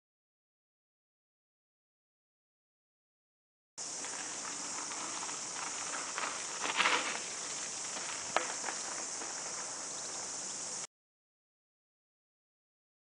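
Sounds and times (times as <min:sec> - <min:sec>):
bike tyres crunching over gravel: 0:03.8 - 0:10.8
steady high hiss: 0:03.8 - 0:10.9.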